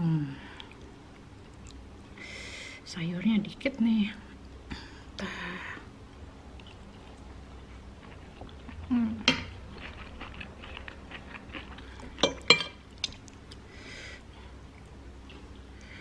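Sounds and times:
quiet chewing: 0.6 - 1.8, 6.6 - 12.3, 13.0 - 16.0
cutlery clinking on a plate: 12.2 - 13.2.

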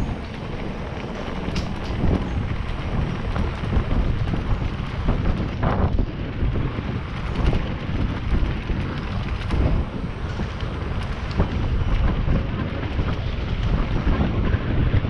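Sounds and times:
bike rattling over cobblestones: 0.0 - 15.0
wind buffeting microphone: 0.0 - 15.0.

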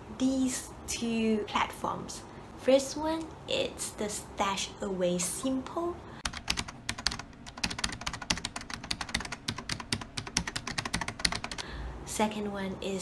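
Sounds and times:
fast keyboard typing: 6.2 - 11.6.

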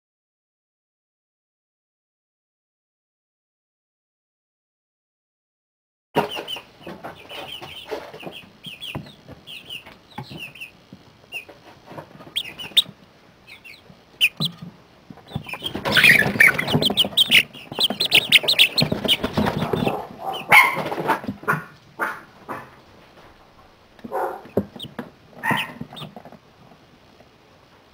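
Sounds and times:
chicks peeping: 6.2 - 27.4.

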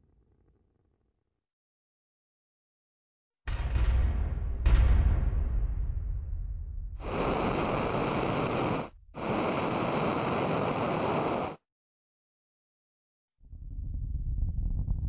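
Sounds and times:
spacecraft thrusters hissing: 7.0 - 11.6.

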